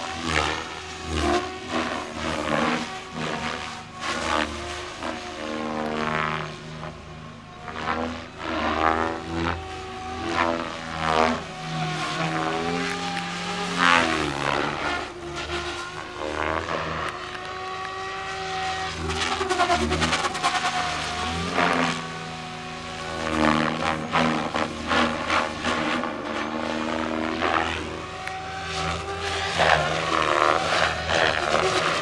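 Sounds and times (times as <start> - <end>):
rc helicopter motor and rotor whine: 0.0 - 32.0.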